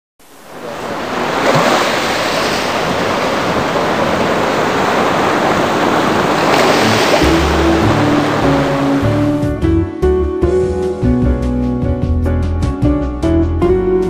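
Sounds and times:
waves washing onto beach: 0:00.2 - 0:09.4.

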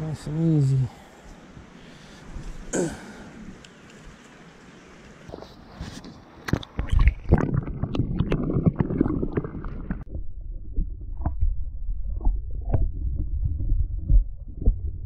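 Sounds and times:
water sloshing with sharp clicks: 0:06.4 - 0:10.2
soft knocks underwater: 0:06.5 - 0:14.9
muffled low underwater rumble: 0:09.8 - 0:15.0.

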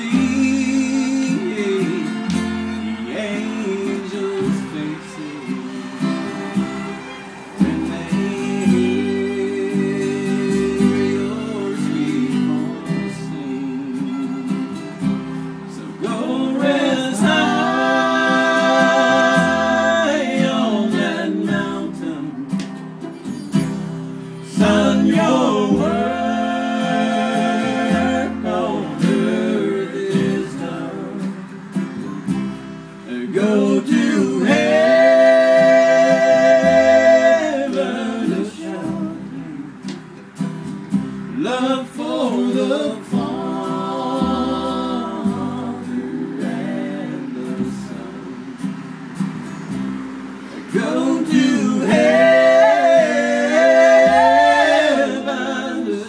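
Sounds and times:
person singing: 0:00.0 - 0:22.8, 0:24.4 - 0:40.1, 0:41.3 - 0:48.9, 0:50.4 - 0:56.0
fiddle: 0:00.0 - 0:46.9
strummed acoustic guitar: 0:00.0 - 0:56.0
upright bass: 0:14.1 - 0:42.0, 0:42.8 - 0:55.6.

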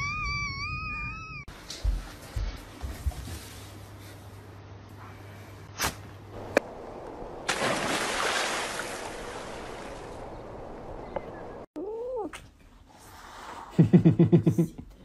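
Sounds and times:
water splashing: 0:06.4 - 0:11.6.

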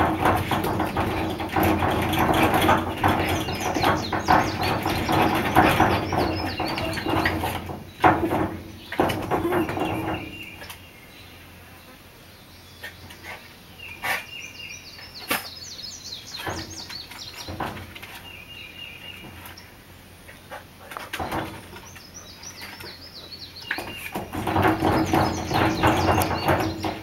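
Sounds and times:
dog paws scraping: 0:00.0 - 0:10.8, 0:16.3 - 0:27.0
dog scrabbling and thumping: 0:00.0 - 0:10.8, 0:16.4 - 0:18.3, 0:20.5 - 0:22.0, 0:23.7 - 0:27.0
birds chirping: 0:00.0 - 0:27.0.

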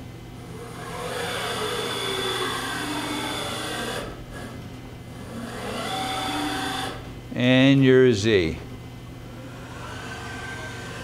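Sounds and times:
steady low hum: 0:00.0 - 0:11.0
servo drive whine: 0:00.5 - 0:07.1, 0:09.3 - 0:11.0.

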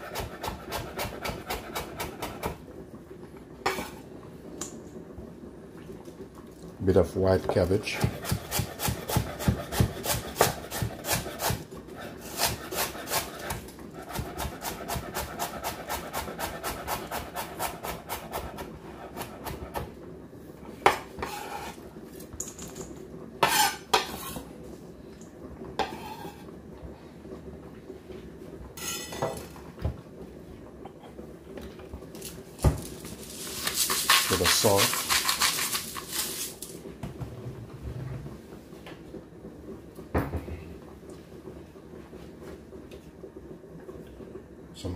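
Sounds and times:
knife chopping cabbage on board: 0:00.0 - 0:02.6, 0:08.0 - 0:11.6, 0:12.2 - 0:19.9, 0:33.6 - 0:35.8
knife scraping into metal bowl: 0:21.2 - 0:21.8, 0:23.4 - 0:24.4, 0:25.8 - 0:26.5, 0:28.8 - 0:29.4, 0:33.4 - 0:36.7.

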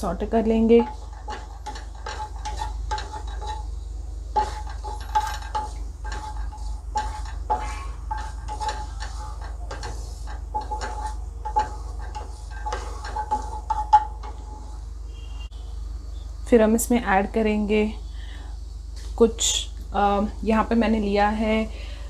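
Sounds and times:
spatula scraping pan: 0:00.0 - 0:15.3
seeds sauteing in oil: 0:00.0 - 0:16.2
low steady hum: 0:00.0 - 0:22.0.

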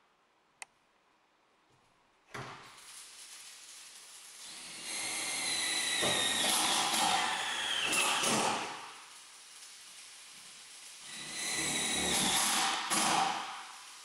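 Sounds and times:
power tool whining: 0:04.4 - 0:08.8, 0:11.0 - 0:13.3.

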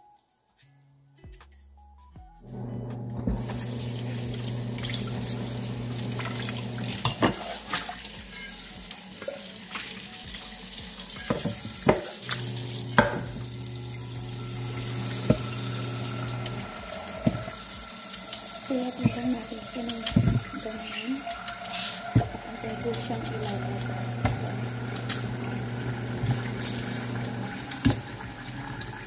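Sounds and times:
tap water running into sink: 0:03.0 - 0:29.0
utensils knocking against pot: 0:12.9 - 0:13.4.

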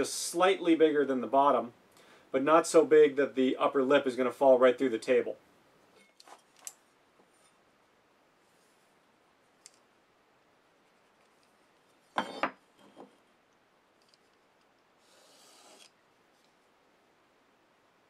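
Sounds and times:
pencil scratching a line: 0:15.0 - 0:15.9.

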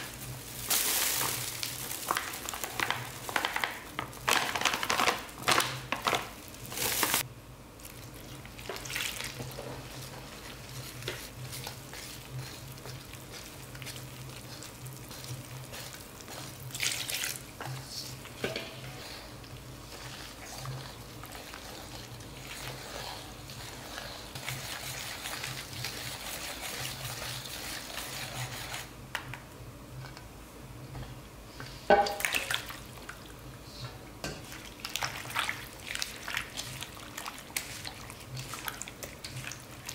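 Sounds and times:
whisk stirring batter in metal bowl: 0:08.3 - 0:28.9, 0:34.2 - 0:39.9.

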